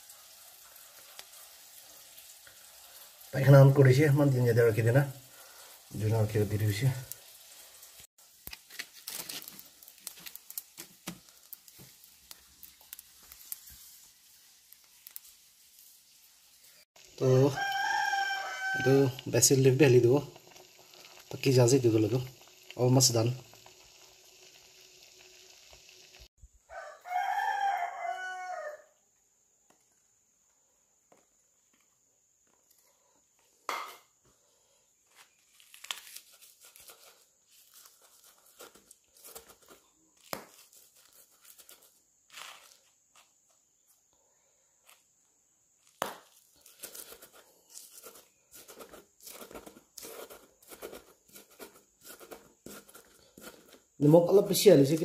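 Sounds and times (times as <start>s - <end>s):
rooster crowing: 17.2s - 19.2s, 26.6s - 29.0s
stone pestle grinding in mortar: 46.8s - 53.9s.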